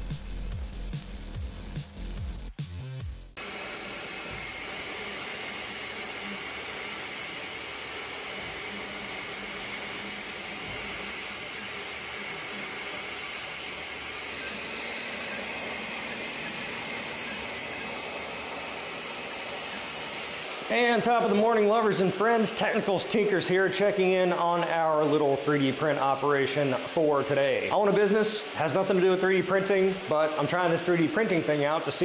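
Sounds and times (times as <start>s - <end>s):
faint motor tones: 3.4s - 23.0s
cooling fans whooshing: 3.4s - 32.0s.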